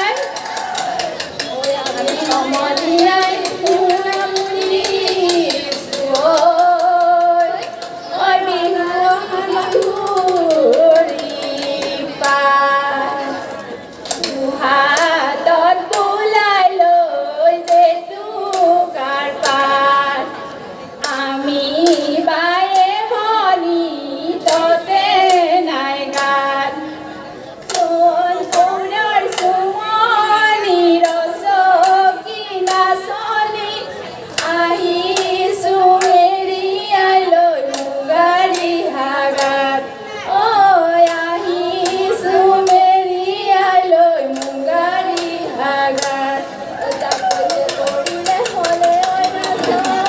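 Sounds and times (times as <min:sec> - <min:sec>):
women singing in unison: 0:00.0 - 0:50.0
hand claps: 0:00.1 - 0:08.0, 0:44.3 - 0:50.0.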